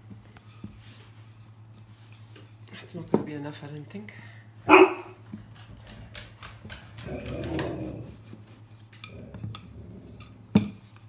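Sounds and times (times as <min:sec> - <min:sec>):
rolling pin rumbling across pastry: 0:06.6 - 0:11.0.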